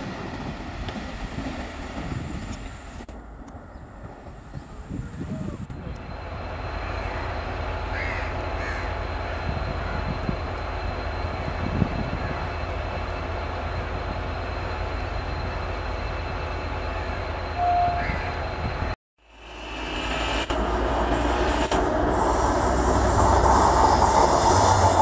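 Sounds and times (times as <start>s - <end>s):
diesel locomotive engine rumbling: 0.0s - 25.0s
crows cawing: 6.8s - 8.9s.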